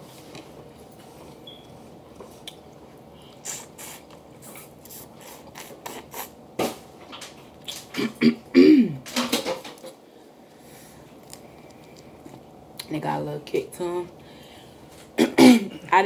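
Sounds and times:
chewing with wet mouth clicks: 0:11.2 - 0:12.9.

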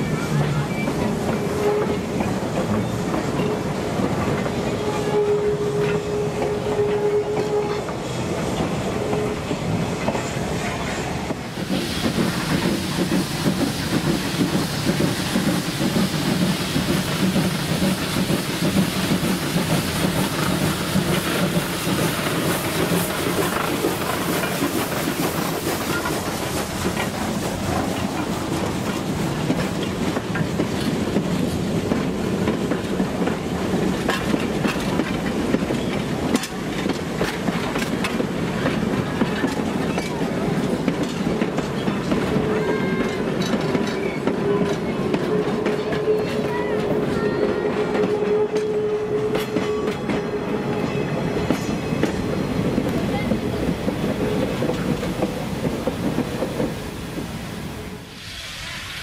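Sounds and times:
train wheels clattering: 0:00.0 - 0:57.6
steam locomotive clatter: 0:00.0 - 0:59.0
steam hiss: 0:09.7 - 0:42.4, 0:51.3 - 0:59.0.

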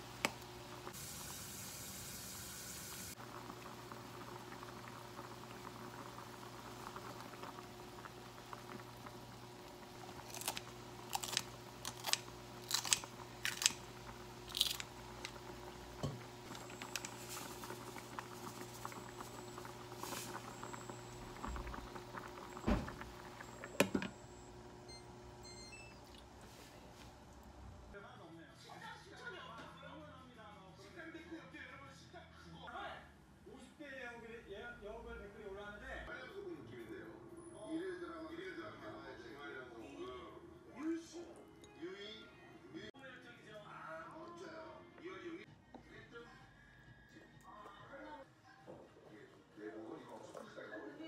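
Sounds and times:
stew boiling: 0:00.0 - 0:28.0
scissors snipping: 0:10.3 - 0:13.8.

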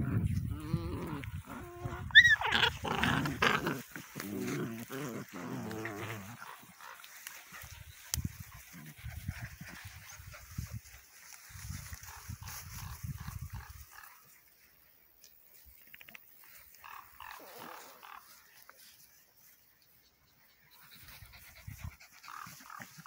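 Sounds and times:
puppies growling and grunting: 0:00.0 - 0:06.8.

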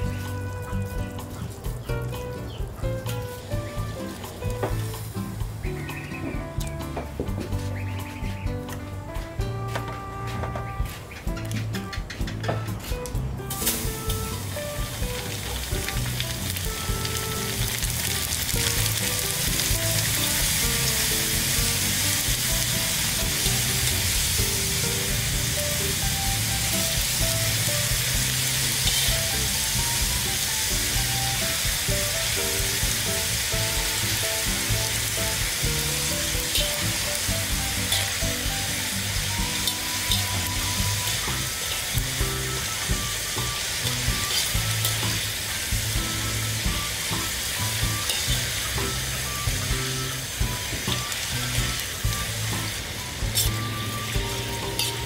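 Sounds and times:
noodles sizzling in oil: 0:13.5 - 0:55.0
metal tongs in wok: 0:26.6 - 0:29.7, 0:33.0 - 0:42.2, 0:43.5 - 0:45.7, 0:47.1 - 0:49.4, 0:52.6 - 0:55.0.

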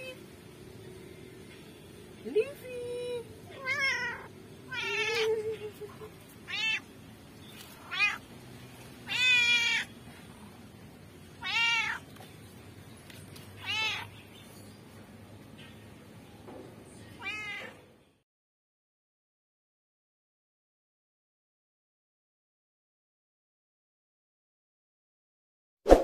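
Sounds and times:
cat meowing: 0:03.5 - 0:05.3, 0:06.4 - 0:06.9, 0:07.8 - 0:08.2, 0:09.0 - 0:09.9, 0:11.4 - 0:12.1, 0:13.6 - 0:14.1, 0:17.2 - 0:17.8.

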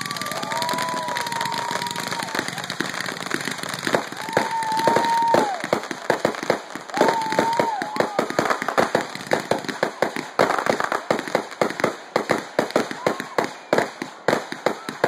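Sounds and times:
firework whistles: 0:00.0 - 0:05.8
fireworks crackling and popping: 0:00.0 - 0:15.0.

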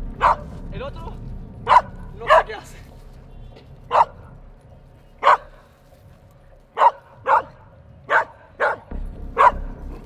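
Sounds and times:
dog barking: 0:00.2 - 0:00.5, 0:01.6 - 0:02.5, 0:03.9 - 0:04.2, 0:05.2 - 0:05.6, 0:06.8 - 0:09.7.

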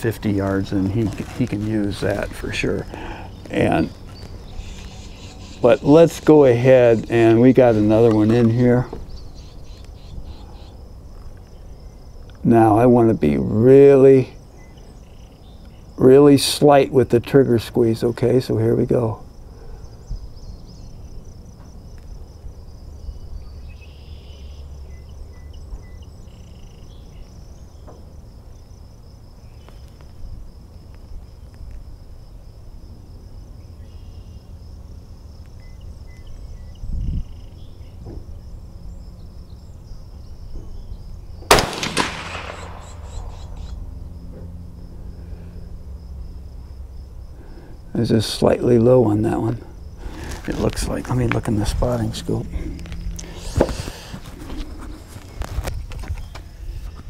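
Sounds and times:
insects buzzing faintly: 0:00.0 - 0:57.0
rifle shot with echo: 0:41.5 - 0:43.5.

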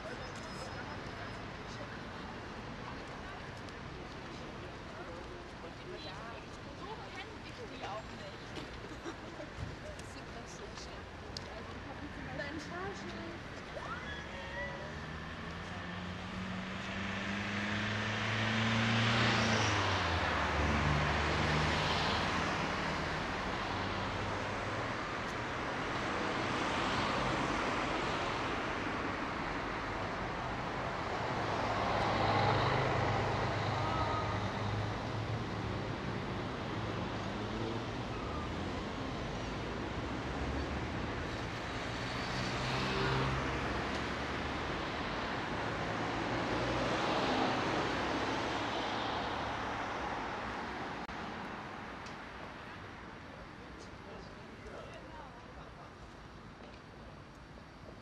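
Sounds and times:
cars passing: 0:10.1 - 0:55.4.

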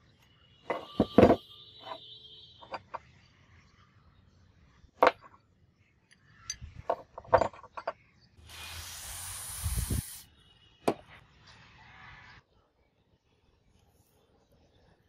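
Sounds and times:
steady hiss: 0:08.4 - 0:10.3.

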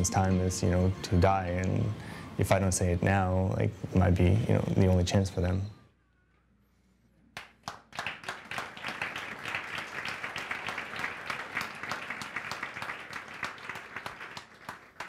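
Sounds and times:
crowd clapping: 0:07.4 - 0:15.0.

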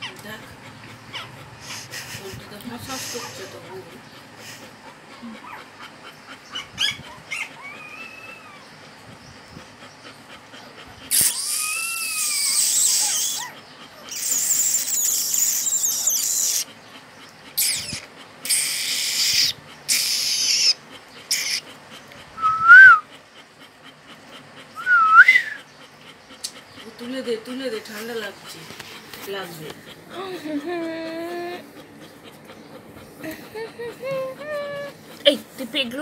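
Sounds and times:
puppies squeaking: 0:05.2 - 0:08.7, 0:11.0 - 0:16.8, 0:17.5 - 0:22.9, 0:24.2 - 0:36.0.

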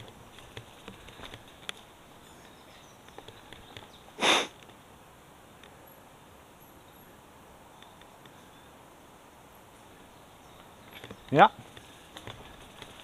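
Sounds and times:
bike rolling over dirt trail: 0:00.0 - 0:01.9
small clicks and rattles: 0:00.0 - 0:01.9, 0:10.9 - 0:13.0
loud sniff: 0:04.2 - 0:04.6.

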